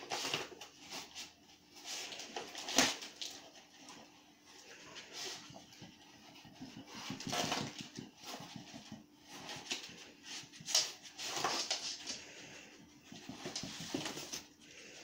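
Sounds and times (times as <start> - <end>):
dog tearing cardboard: 0.0 - 4.0, 6.7 - 12.2.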